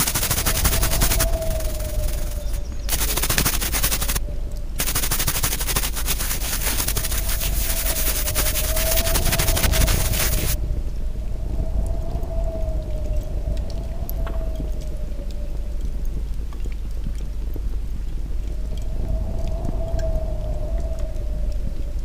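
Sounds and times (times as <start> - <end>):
toothbrush scrubbing metal: 0.0 - 4.2, 4.8 - 10.6.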